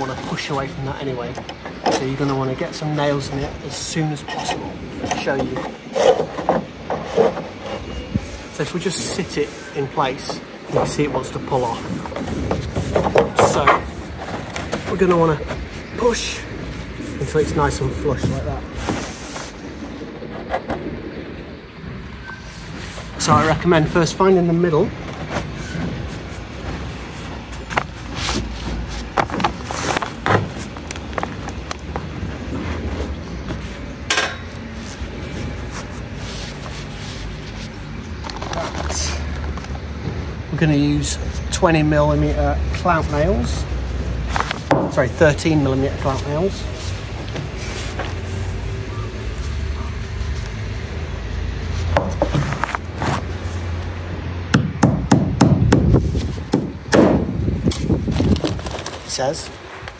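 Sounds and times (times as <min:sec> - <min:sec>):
hammer driving nails: 0:54.5 - 0:57.2
knocks of fibreglass trim: 0:54.5 - 0:57.9.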